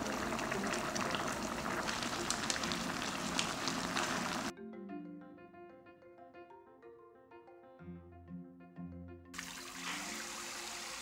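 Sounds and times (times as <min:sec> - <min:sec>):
sauce bubbling and sizzling: 0:00.0 - 0:04.5, 0:09.4 - 0:11.0.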